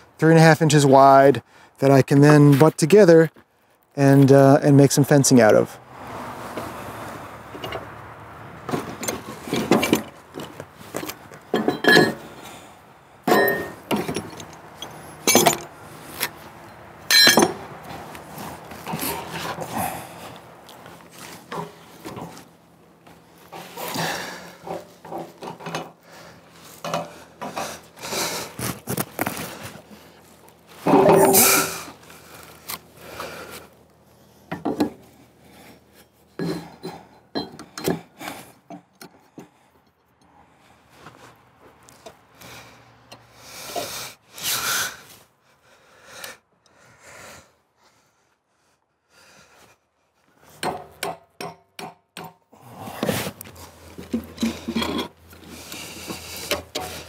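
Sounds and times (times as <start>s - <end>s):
metal clanks: 8.7s - 12.4s, 13.2s - 15.7s, 17.1s - 17.7s, 30.8s - 31.8s, 54.0s - 57.0s.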